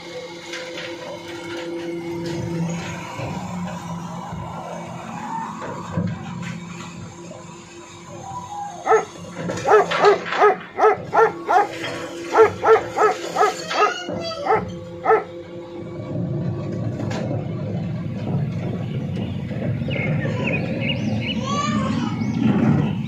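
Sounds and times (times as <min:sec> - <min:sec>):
truck engine and hydraulics rumbling: 0:00.0 - 0:23.0
dog barking: 0:08.8 - 0:15.3.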